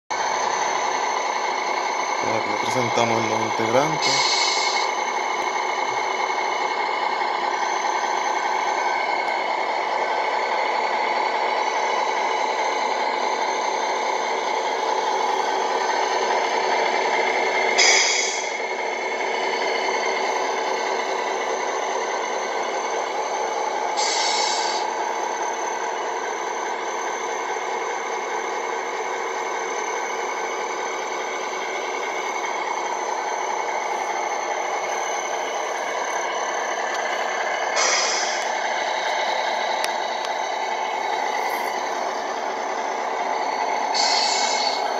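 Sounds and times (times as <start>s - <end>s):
simulated truck engine idling: 0.1s - 44.9s
simulated air brake hisses: 4.0s - 5.0s, 17.8s - 18.6s, 24.0s - 25.0s, 37.8s - 38.4s, 43.9s - 44.9s.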